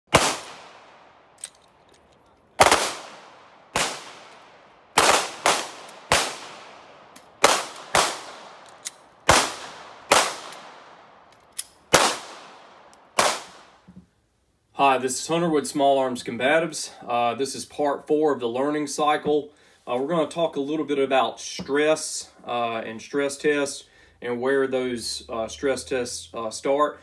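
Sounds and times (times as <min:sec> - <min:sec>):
handgun shots with echo: 0:00.1 - 0:01.6, 0:02.6 - 0:04.4, 0:05.0 - 0:10.9, 0:13.2 - 0:13.7.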